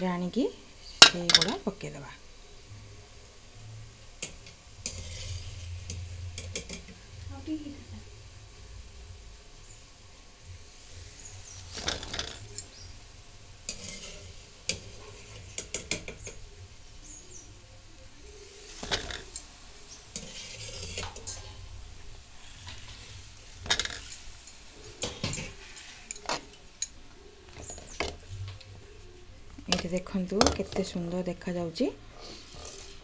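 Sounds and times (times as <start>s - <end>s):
metal ladle scraping metal pan: 4.2s - 6.9s, 11.1s - 12.7s, 13.6s - 16.4s, 18.6s - 21.7s, 22.4s - 26.9s, 32.2s - 33.0s.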